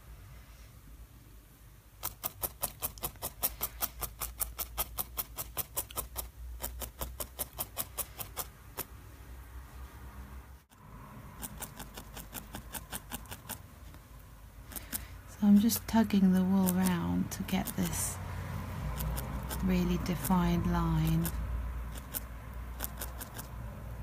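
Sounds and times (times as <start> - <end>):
felting needle poking wool: 2.0 - 9.0, 11.4 - 18.2, 18.9 - 23.5.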